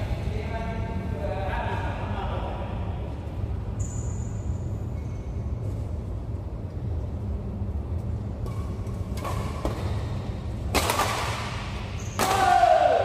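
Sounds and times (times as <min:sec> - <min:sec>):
steady low hum: 0:00.0 - 0:13.0
racket hitting shuttlecock: 0:08.4 - 0:10.0, 0:10.7 - 0:13.0.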